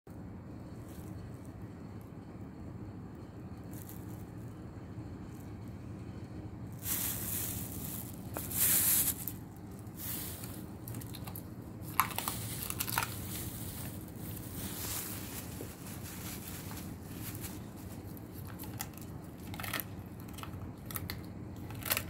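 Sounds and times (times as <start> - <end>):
loud rustle: 6.8 - 11.0, 11.9 - 18.2
dog crunching and chewing fish: 6.9 - 15.6, 17.3 - 22.0.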